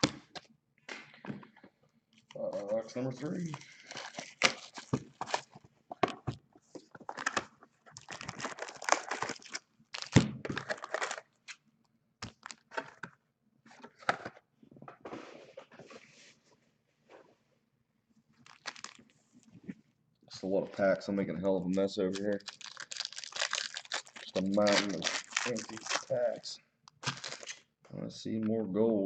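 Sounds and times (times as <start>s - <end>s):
card packs being torn open: 2.5s - 5.6s, 7.0s - 11.6s, 12.2s - 13.0s, 18.4s - 19.1s, 22.1s - 27.7s
wrappers crinkling: 2.6s - 5.6s, 7.0s - 11.3s, 12.2s - 12.7s, 18.4s - 19.1s, 22.1s - 27.7s.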